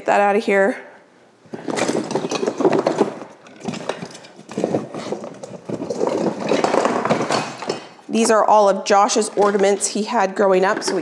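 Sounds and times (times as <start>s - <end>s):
rummaging rustles and clicks: 1.5s - 10.1s.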